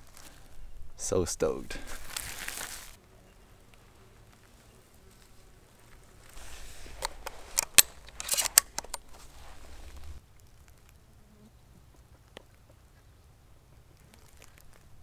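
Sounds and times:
handling rustle: 1.7s - 3.0s, 3.6s - 11.0s, 14.0s - 15.0s
shotgun shells clicking: 7.0s - 9.1s.

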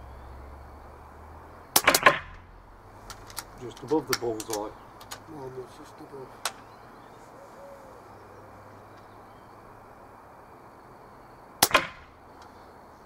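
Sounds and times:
air rifle firing with sharp crack: 1.7s - 2.4s, 11.6s - 12.2s.

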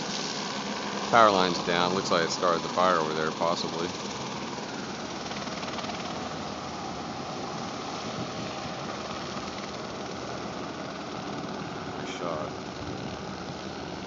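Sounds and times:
distant helicopter drone: 0.0s - 14.0s
wind noise on microphone: 8.0s - 8.8s, 12.6s - 13.6s.

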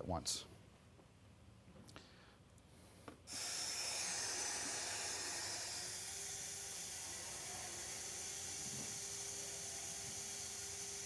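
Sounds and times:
cnc router hissing and whining: 3.3s - 11.0s.

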